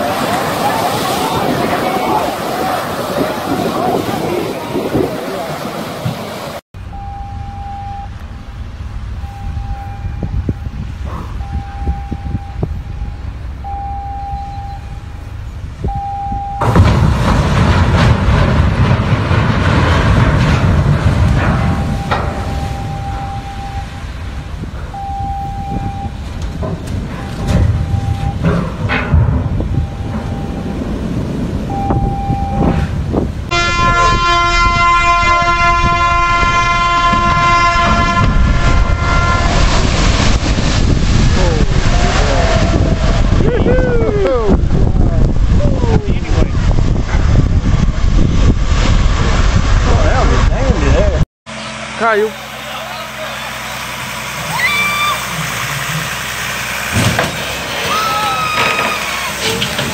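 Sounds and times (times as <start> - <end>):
rush of water splash: 0.0 - 6.6, 16.6 - 28.8, 36.2 - 59.9
loud rough rumbling: 0.0 - 59.9
ship's horn blasts: 6.8 - 8.4, 9.1 - 16.9, 21.5 - 26.5, 27.2 - 41.2.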